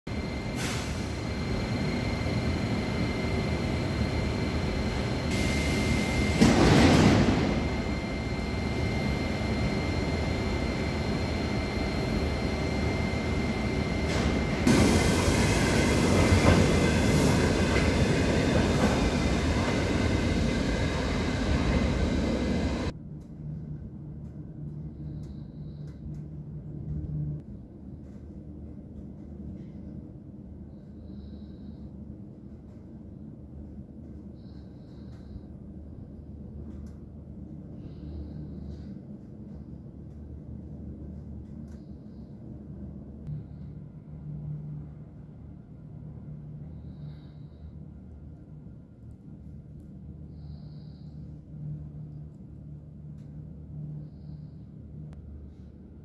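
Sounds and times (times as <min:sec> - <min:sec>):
high whine: 0:00.1 - 0:27.4
metro train rumble: 0:00.1 - 0:56.0
faint low hum: 0:20.9 - 0:56.0.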